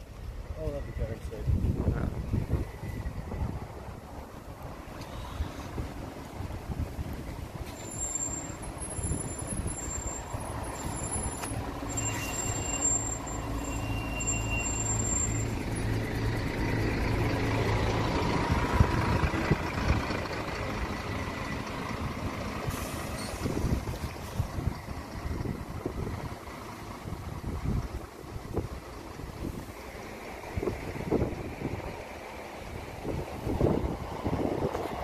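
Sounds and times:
bus diesel engine: 0.0s - 35.0s
short high-pitched squeals: 7.6s - 16.0s, 22.7s - 23.6s.

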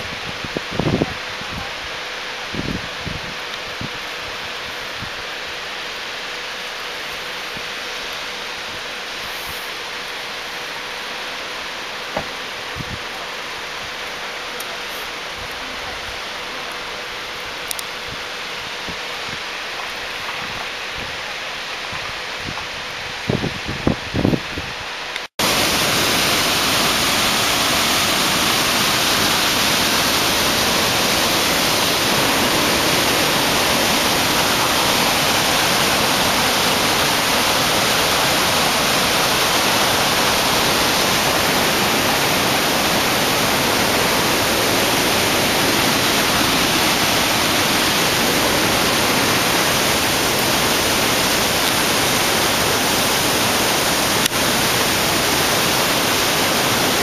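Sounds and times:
waterfall rushing: 24.9s - 57.0s.

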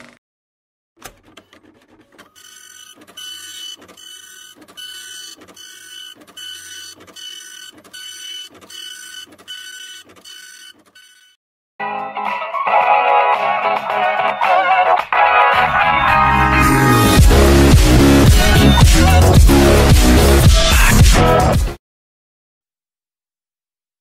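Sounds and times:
rhythmic mechanical whirring: 1.2s - 11.4s.

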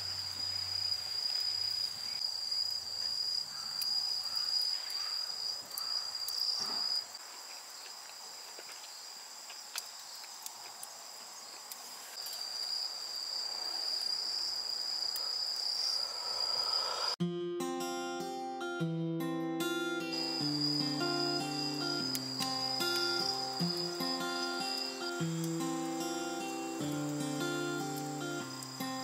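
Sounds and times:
insects trilling: 0.0s - 17.2s, 19.6s - 29.0s
campfire crackling: 7.1s - 12.6s, 20.1s - 29.0s.

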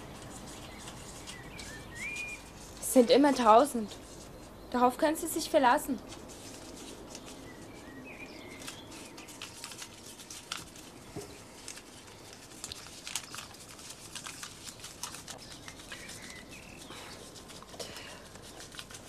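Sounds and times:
soft clicks and crackles: 8.5s - 16.5s.

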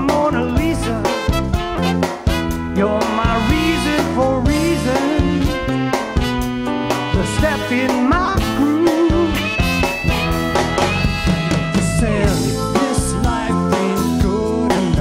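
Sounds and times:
drum kit: 0.0s - 15.0s
electric bass: 0.0s - 15.0s
saxophone: 0.6s - 12.3s
trumpet: 0.6s - 12.4s.

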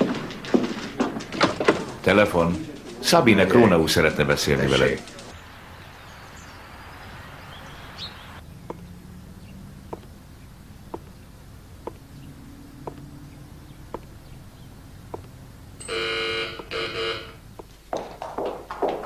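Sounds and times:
electric doorbell buzzing: 15.8s - 17.5s
high-heeled footsteps on hard floor: 17.6s - 19.0s.

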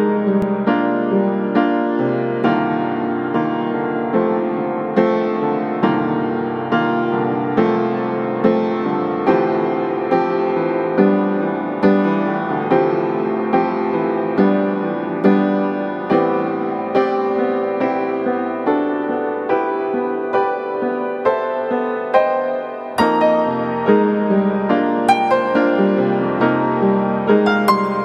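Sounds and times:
piano music: 0.0s - 28.0s.

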